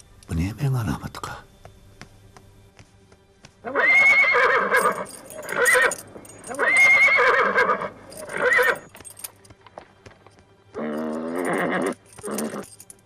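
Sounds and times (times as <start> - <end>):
horse neighing: 3.7 - 5.9, 6.5 - 8.9, 10.8 - 12.7.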